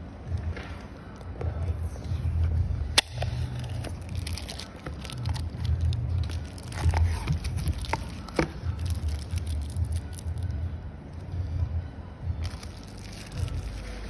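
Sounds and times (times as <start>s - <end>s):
sharp snap: 2.9s - 3.3s
plastic crinkling and rustling: 3.6s - 10.4s, 12.4s - 14.0s.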